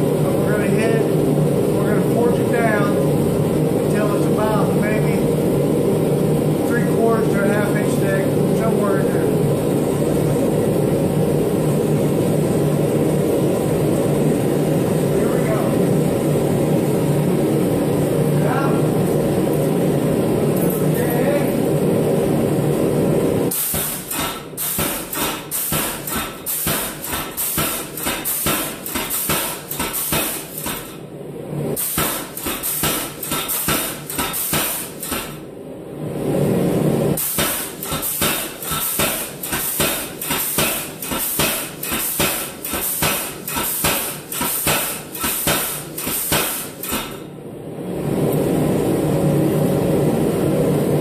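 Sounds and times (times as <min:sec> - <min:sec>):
power hammer striking steel: 0:23.5 - 0:31.0, 0:31.8 - 0:35.4, 0:37.2 - 0:47.2.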